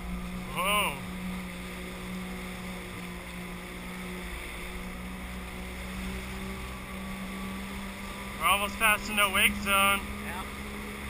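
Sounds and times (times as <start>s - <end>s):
choppy water: 0.0s - 11.0s
watercraft engine droning: 0.0s - 11.0s
wind: 0.0s - 11.0s.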